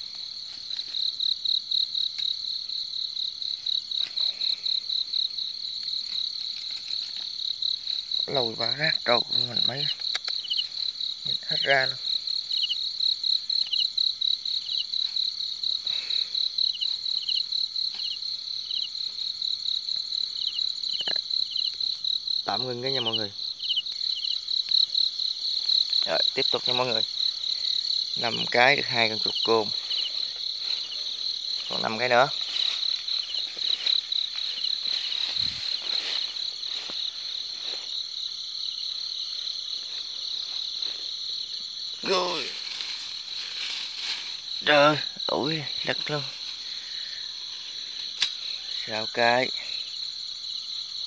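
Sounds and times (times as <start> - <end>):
footsteps rustling through grass: 0.0 - 1.4, 27.0 - 48.1
high pulsed insect chirp: 0.0 - 51.0
insect triple chirp: 0.0 - 51.0.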